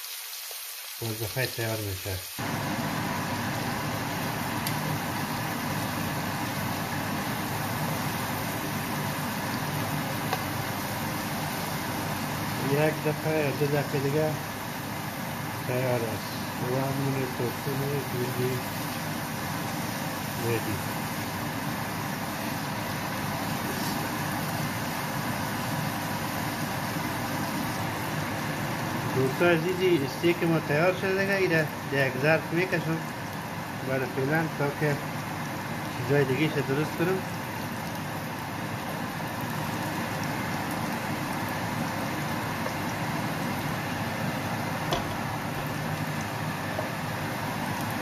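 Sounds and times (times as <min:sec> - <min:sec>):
meat sizzling in a frying pan: 0:00.0 - 0:48.0.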